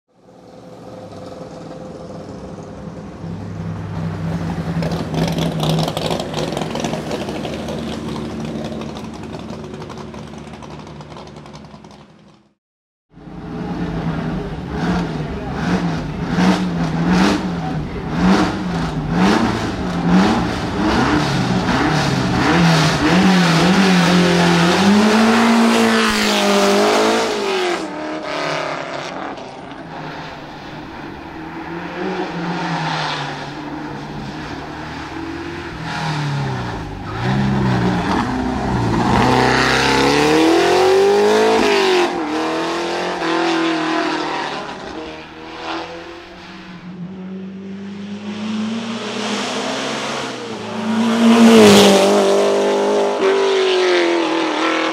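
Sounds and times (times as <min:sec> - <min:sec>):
race car engine revving: 0:13.4 - 0:54.9.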